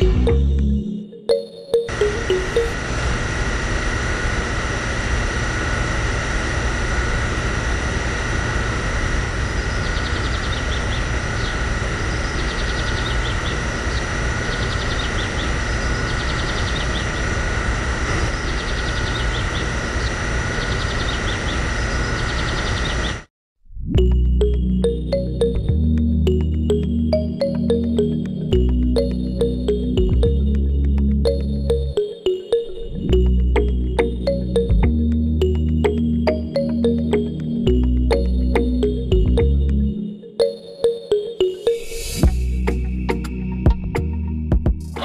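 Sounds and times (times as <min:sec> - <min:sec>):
small electric pump whining: 0:01.9 - 0:23.3.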